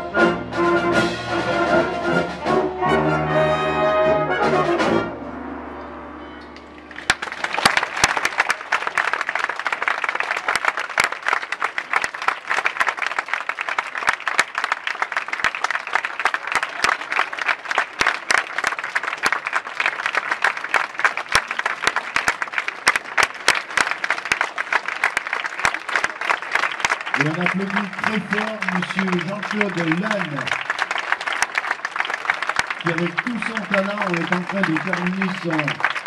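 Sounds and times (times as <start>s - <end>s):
audience applauding: 6.4s - 36.0s.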